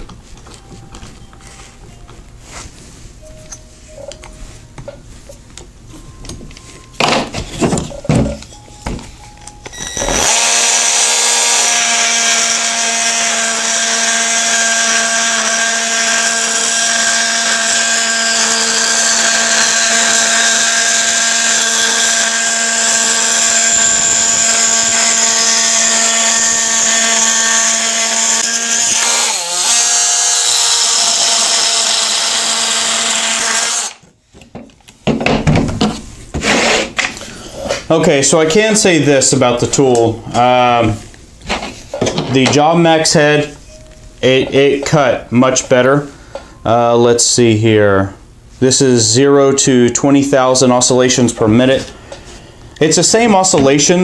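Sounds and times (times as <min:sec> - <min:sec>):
oscillating multi-tool cutting wood: 0:09.7 - 0:34.0.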